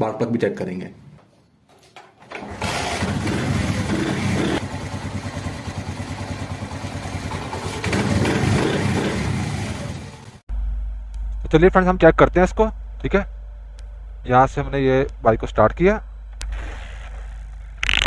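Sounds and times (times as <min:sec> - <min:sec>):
motorcycle engine starting and running: 0:02.3 - 0:11.5, 0:17.8 - 0:18.0.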